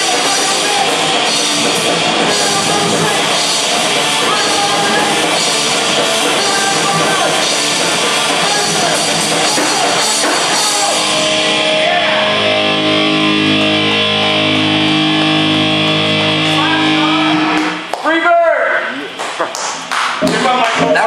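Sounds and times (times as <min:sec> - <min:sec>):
held guitar tones ringing: 0:00.0 - 0:17.6
punk metal band playing loud: 0:00.0 - 0:17.8
shouted vocals: 0:02.0 - 0:12.9, 0:16.4 - 0:18.7.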